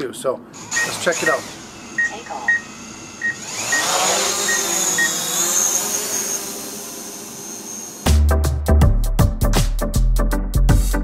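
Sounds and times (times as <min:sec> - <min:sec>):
drone propellers whining: 0:00.6 - 0:08.1.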